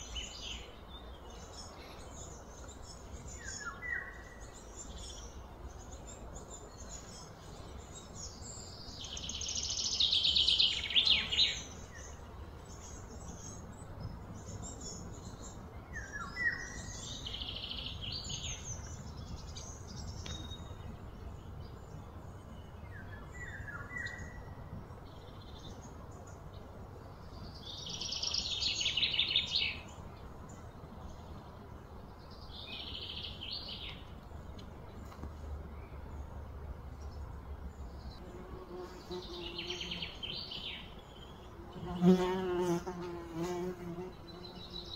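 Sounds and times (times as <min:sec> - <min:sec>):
low background noise: 0:00.0 - 0:44.9
bird trilling songs: 0:27.2 - 0:31.5, 0:37.0 - 0:44.9.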